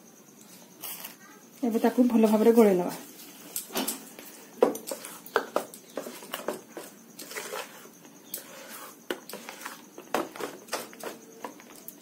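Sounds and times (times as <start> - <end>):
spoon clinking and scraping bowl: 4.8 - 11.9.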